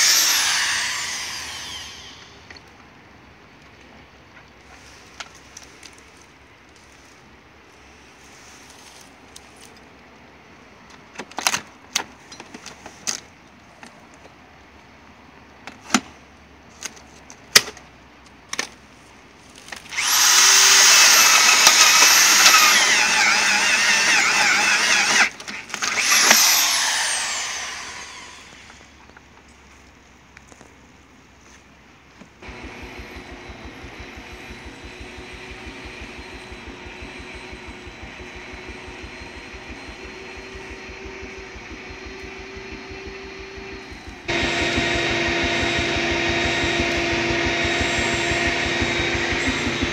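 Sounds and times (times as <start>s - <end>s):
power drill high whine: 0.0s - 2.5s, 19.9s - 29.0s, 32.4s - 49.9s
machine hum with low pulse: 32.4s - 49.9s.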